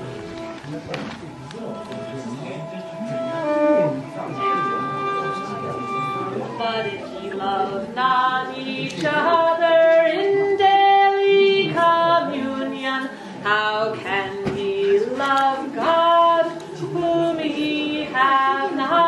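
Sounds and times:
women singing a cappella: 6.6 - 19.0.

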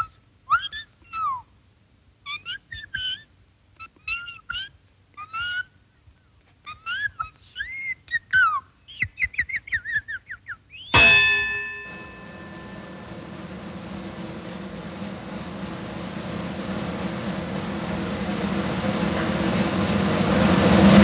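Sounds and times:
high-pitched whistled chirping song: 6.7 - 11.2
loud metallic clang: 11.0 - 20.0.

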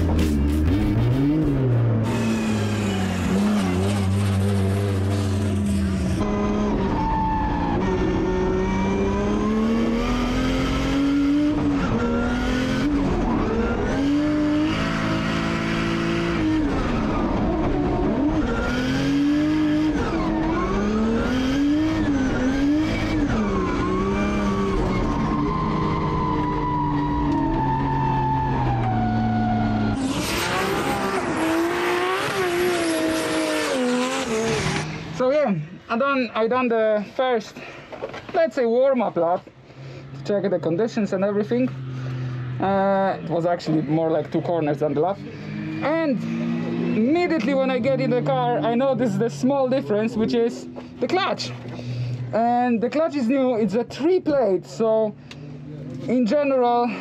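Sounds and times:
car engine revving under load: 0.0 - 35.2, 44.8 - 52.4.

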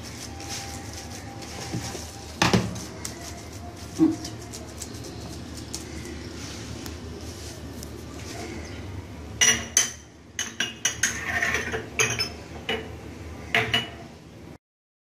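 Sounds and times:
dishes and utensils clinking: 9.4 - 14.1.

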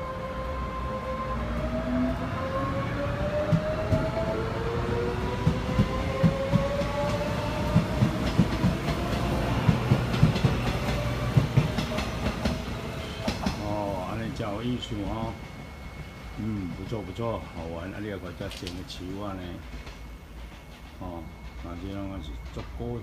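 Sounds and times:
electric train motors whining: 0.0 - 23.0
wheels clacking over rail joints: 5.4 - 13.8.

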